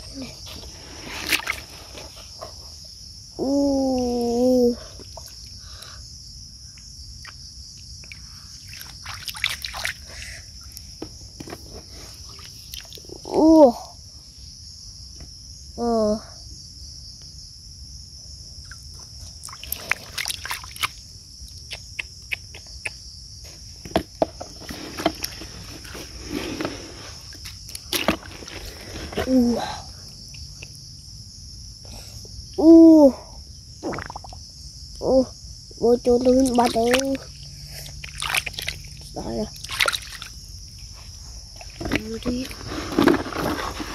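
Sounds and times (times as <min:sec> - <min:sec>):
splashing in muddy water: 0:00.0 - 0:02.1, 0:08.1 - 0:10.4, 0:19.3 - 0:21.0, 0:27.2 - 0:29.4, 0:33.8 - 0:34.4, 0:36.3 - 0:43.9
insects droning: 0:00.0 - 0:43.9.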